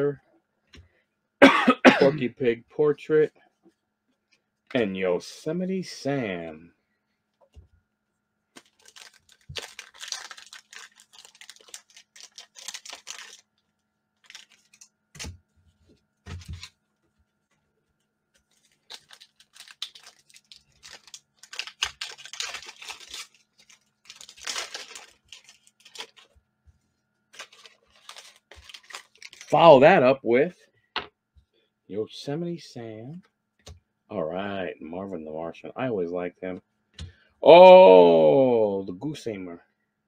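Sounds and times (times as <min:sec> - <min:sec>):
plastic wrapper tearing and crinkling: 0:08.6 - 0:15.4, 0:16.3 - 0:16.8, 0:18.4 - 0:26.4, 0:27.3 - 0:29.6.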